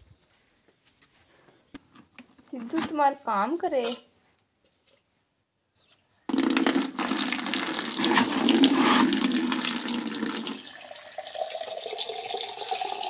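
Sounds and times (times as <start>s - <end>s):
tap water pouring into bucket: 6.3s - 13.0s
water filling a mug: 6.3s - 13.0s.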